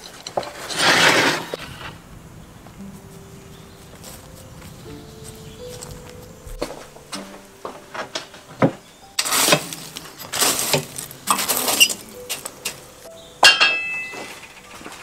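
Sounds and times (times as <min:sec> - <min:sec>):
metal skewers scraping: 0:00.0 - 0:02.0, 0:06.8 - 0:15.0
metal skewers clinking: 0:07.9 - 0:15.0.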